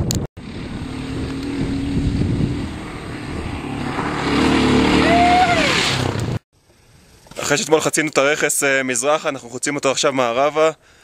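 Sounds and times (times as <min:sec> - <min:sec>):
motorcycle engine on gravel road: 0:00.1 - 0:06.4.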